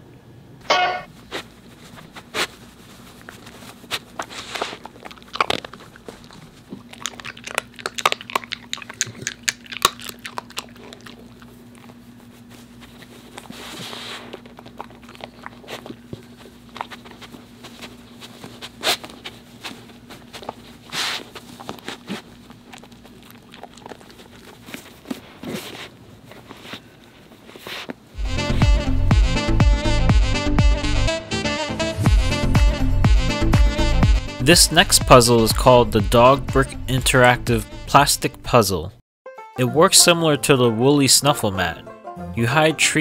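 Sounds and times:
dog sniffing: 1.2s - 28.2s
dog crunching treats: 1.7s - 28.0s.

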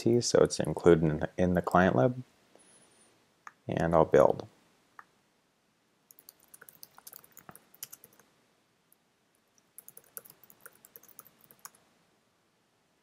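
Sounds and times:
faint computer keyboard typing: 6.1s - 8.3s, 9.5s - 11.8s.

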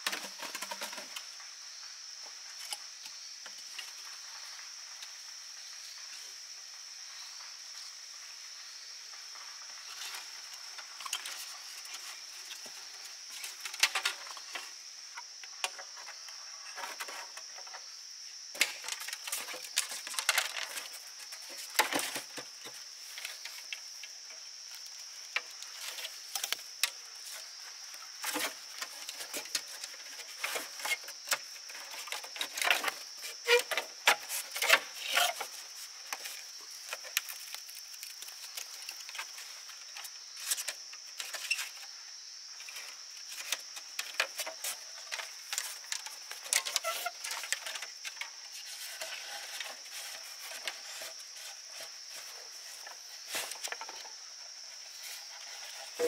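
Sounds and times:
bamboo poles clicking and knocking: 0.0s - 1.4s, 9.9s - 17.9s, 18.5s - 42.0s, 42.6s - 54.2s
insects droning: 0.0s - 56.0s
bamboo strips scraping: 18.6s - 23.8s, 24.7s - 41.9s, 42.6s - 56.0s.

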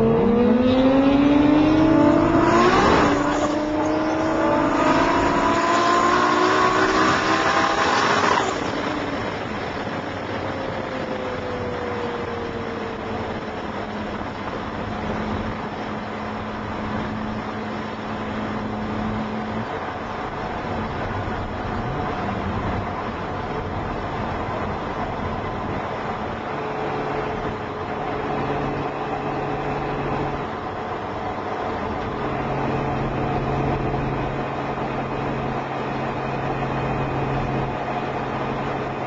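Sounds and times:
car engine revving: 0.0s - 10.0s
road noise: 0.0s - 39.0s.

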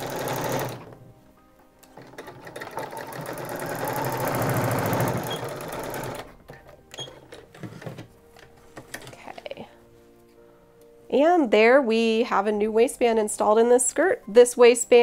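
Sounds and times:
sewing machine running fast: 0.0s - 0.9s, 2.2s - 6.3s.

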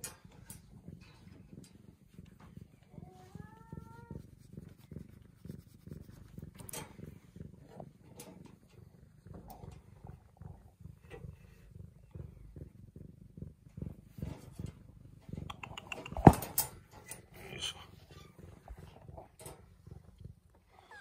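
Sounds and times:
cat purring: 0.0s - 21.0s
faint clicks: 14.2s - 17.2s.

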